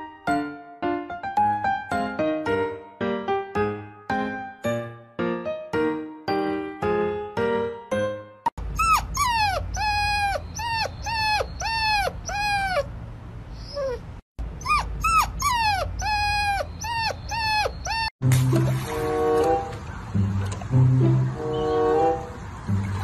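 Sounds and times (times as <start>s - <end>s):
piano notes: 0.0s - 8.5s, 18.2s - 23.0s
puppy howling: 8.7s - 12.9s, 13.6s - 14.0s, 14.6s - 18.1s.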